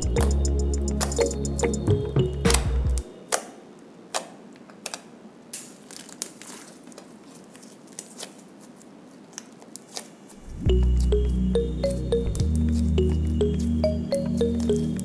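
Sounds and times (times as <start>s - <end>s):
background music: 0.0s - 3.2s, 10.5s - 15.0s.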